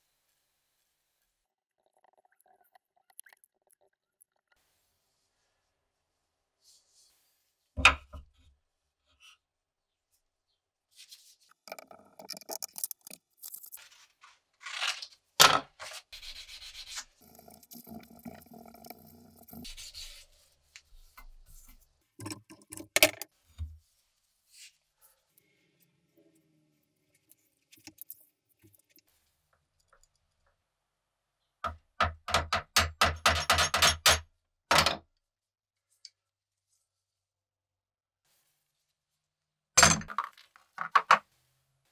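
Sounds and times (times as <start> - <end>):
sandpaper crinkling and rubbing: 15.8 - 17.2.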